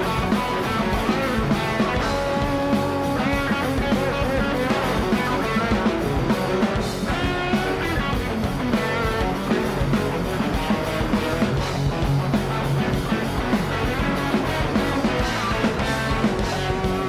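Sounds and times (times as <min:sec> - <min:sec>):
bending lead guitar: 0:00.0 - 0:17.0
steady drum beat: 0:00.0 - 0:17.0.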